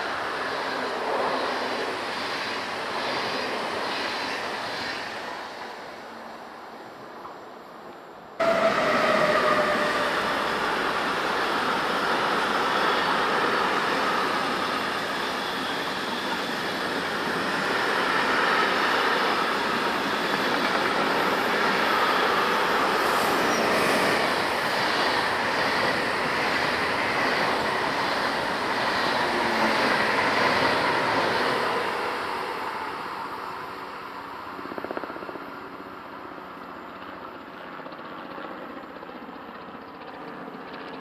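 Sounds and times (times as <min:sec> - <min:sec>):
train passing: 0:00.0 - 0:36.6
train rattle: 0:08.4 - 0:33.2.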